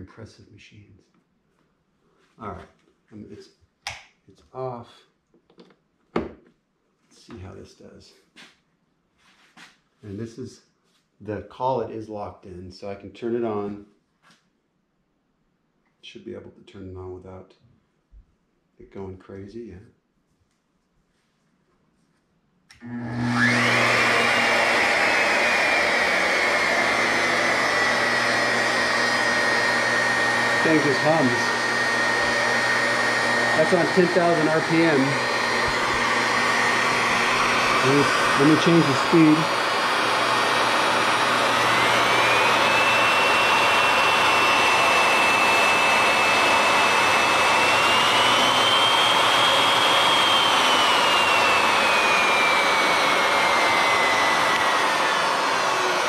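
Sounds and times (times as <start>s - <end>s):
router whining: 22.7s - 56.0s.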